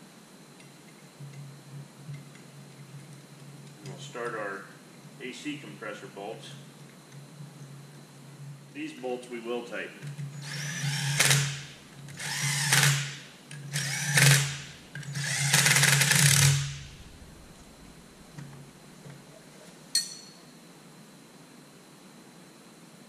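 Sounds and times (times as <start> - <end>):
power driver running bolts: 10.0 - 18.5.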